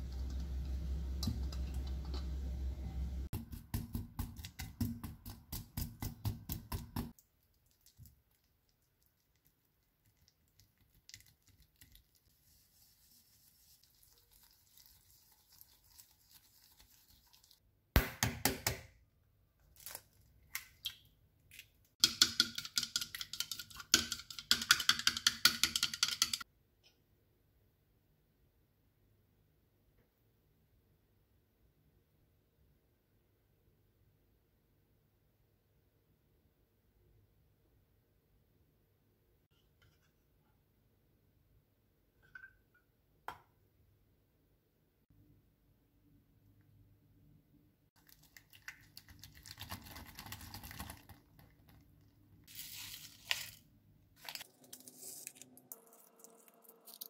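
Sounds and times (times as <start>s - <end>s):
low hum: 0.0s - 3.3s.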